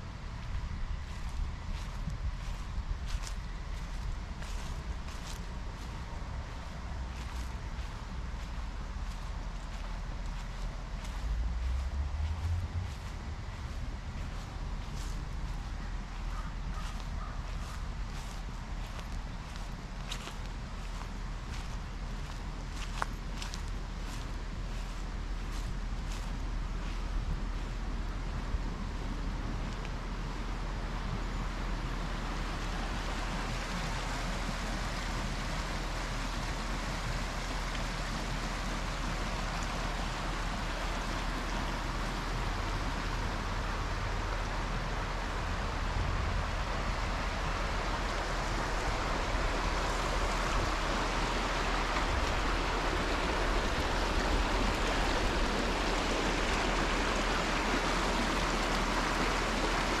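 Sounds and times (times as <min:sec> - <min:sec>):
low rumble: 0:00.0 - 0:34.1
creek running over rocks: 0:00.0 - 1:00.0.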